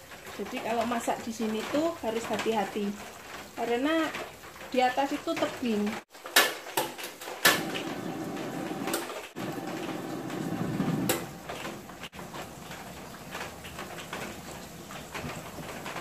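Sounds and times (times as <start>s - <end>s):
gas burner rushing: 7.4s - 13.7s.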